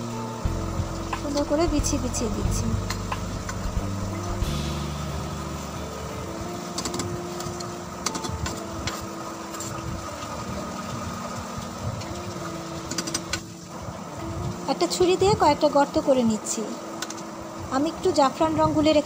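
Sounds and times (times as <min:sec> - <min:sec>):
machine-like hum: 0:00.0 - 0:14.8.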